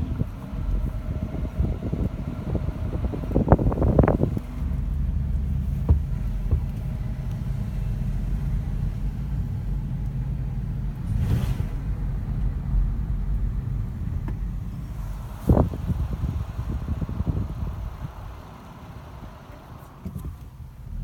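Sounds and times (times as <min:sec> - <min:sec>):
car engine and tyres rumbling: 0:00.0 - 0:21.0
brief hiss: 0:11.0 - 0:12.0.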